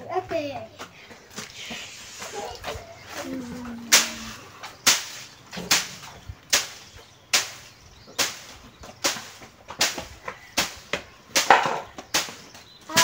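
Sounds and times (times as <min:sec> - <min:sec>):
stick beating dry stalks: 0:01.4 - 0:13.0.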